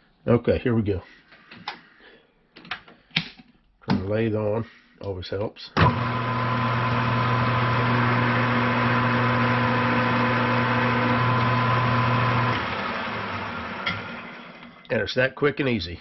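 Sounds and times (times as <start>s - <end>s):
lathe coasting down: 5.8s - 14.9s
metal lathe humming: 5.8s - 14.9s.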